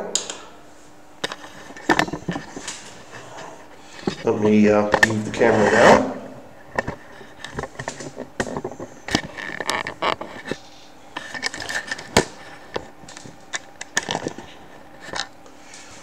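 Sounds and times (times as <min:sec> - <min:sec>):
scraping rubs on microphone: 0:05.3 - 0:06.3.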